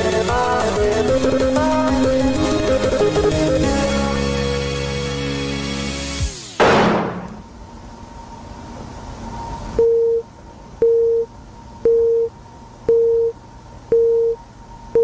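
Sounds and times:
telephone busy signal beeps: 9.8s - 12.3s, 12.9s - 14.4s.

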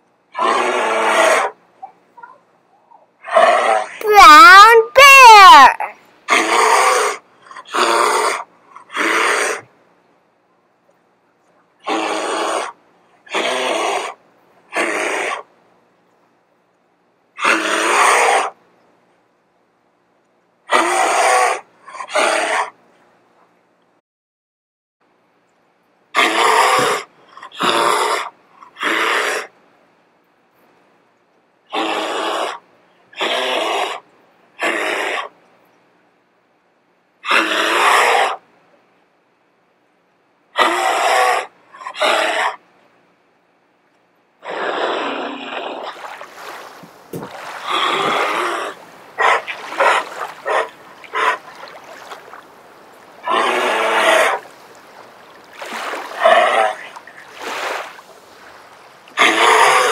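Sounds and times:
bear huffing: 44.4s - 52.4s
water splashing: 45.4s - 59.9s.

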